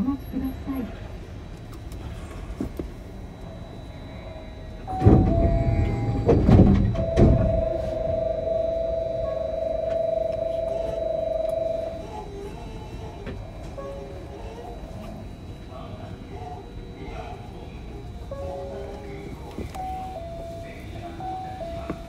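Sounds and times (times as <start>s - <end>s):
two-note electronic warning tone: 3.6s - 12.3s, 19.8s - 22.0s
sliding doors thudding in tracks: 4.9s - 8.3s.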